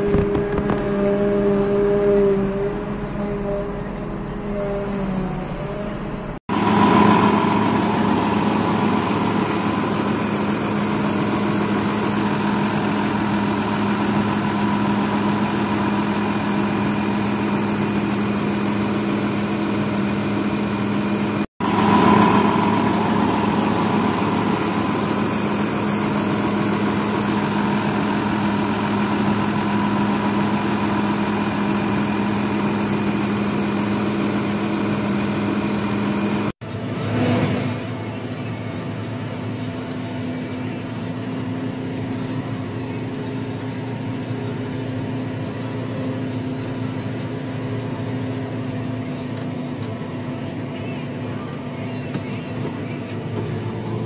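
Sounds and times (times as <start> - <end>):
tractor diesel engine idling: 5.9 - 36.5, 37.8 - 54.0.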